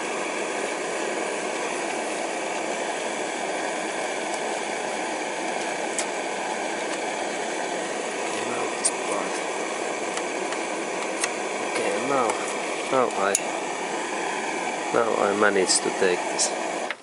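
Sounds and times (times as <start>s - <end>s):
gas torch flame hissing: 0.0s - 17.0s.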